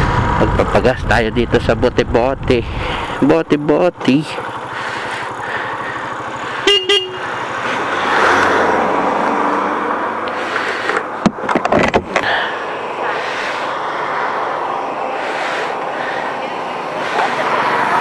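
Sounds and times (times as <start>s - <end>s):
traffic noise: 0.0s - 18.0s
motorcycle engine idling: 2.6s - 7.9s.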